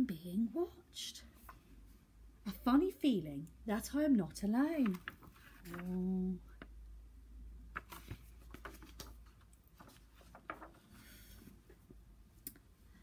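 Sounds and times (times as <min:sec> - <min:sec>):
low steady hum: 0:00.0 - 0:13.0
book pages rustling: 0:04.7 - 0:06.8, 0:07.7 - 0:12.0.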